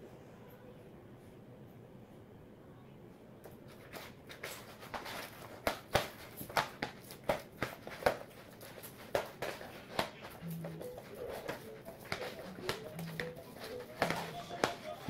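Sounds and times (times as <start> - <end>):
dough kneading squelches and slaps: 3.7 - 15.0.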